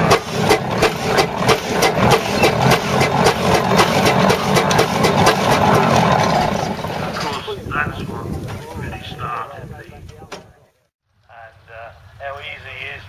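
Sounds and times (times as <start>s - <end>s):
steam engine exhaust chuffing: 0.0s - 8.2s.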